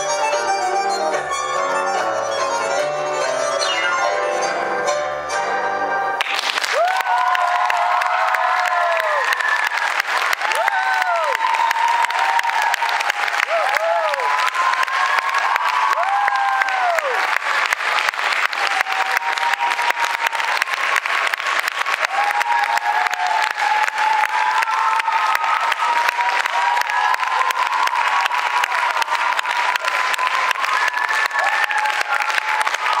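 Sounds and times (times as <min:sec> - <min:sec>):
audience cheering: 0:06.2 - 0:33.0
audience clapping: 0:06.2 - 0:33.0.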